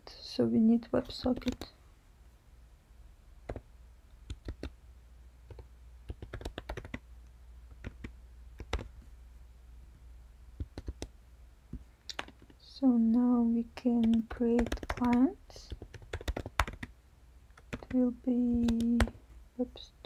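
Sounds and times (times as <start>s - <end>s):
faint steady low hum: 0.0s - 20.0s
computer keyboard typing: 1.0s - 1.7s, 4.3s - 4.8s, 5.5s - 7.0s, 7.8s - 8.9s, 10.6s - 11.1s, 12.1s - 12.6s, 14.0s - 16.9s, 17.5s - 18.0s.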